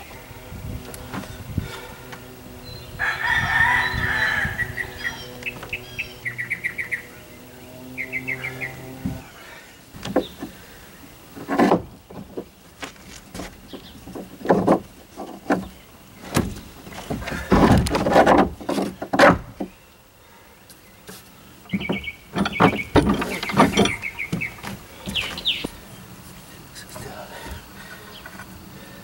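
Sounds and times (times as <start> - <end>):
wood and clamps knocking and scraping: 10.0 - 10.6, 11.3 - 19.8, 21.7 - 25.7.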